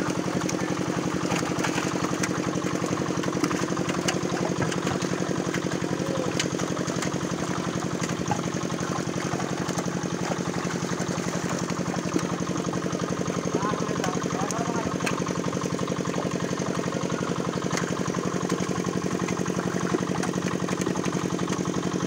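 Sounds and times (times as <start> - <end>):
engine idling: 0.0 - 22.0
fish splashing in water: 0.0 - 22.0.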